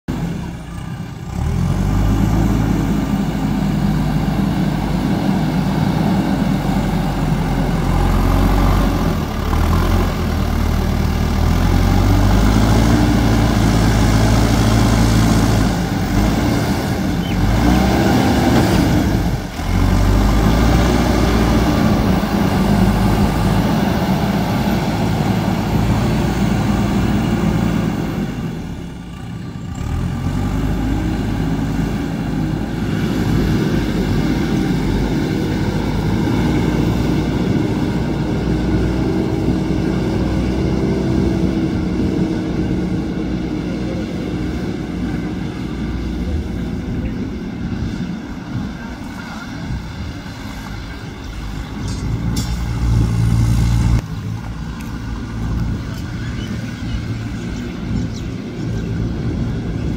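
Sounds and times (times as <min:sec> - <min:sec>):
diesel engine revving under load: 0:00.0 - 0:59.9.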